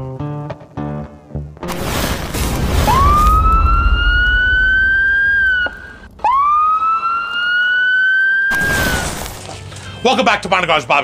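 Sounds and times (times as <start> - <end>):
low rumbling whoosh: 2.4 - 6.7
rising squealing wail: 2.8 - 9.2.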